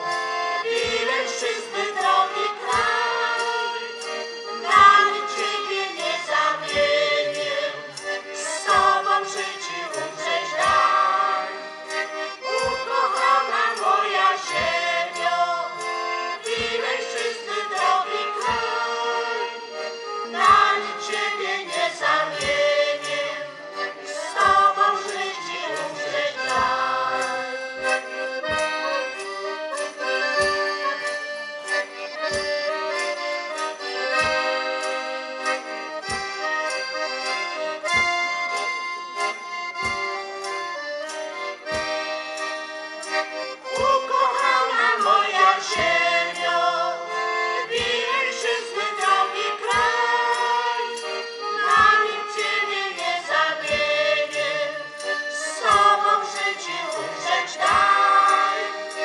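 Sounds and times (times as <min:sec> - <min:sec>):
accordion tune: 0:00.0 - 0:59.0
women singing: 0:00.6 - 0:27.7, 0:43.7 - 0:59.0.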